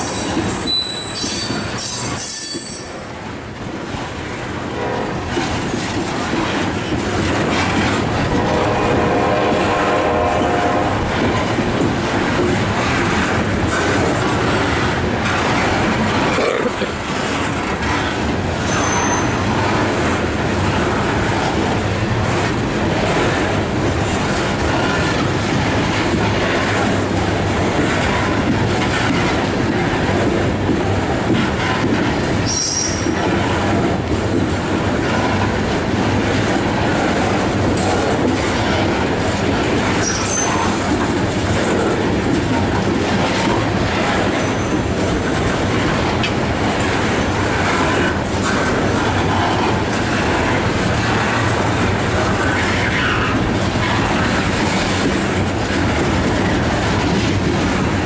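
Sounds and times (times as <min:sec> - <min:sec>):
high wheel squeals: 0:00.0 - 0:03.0, 0:18.7 - 0:19.4, 0:40.0 - 0:40.6
train wheels clattering on rails: 0:00.0 - 0:58.0.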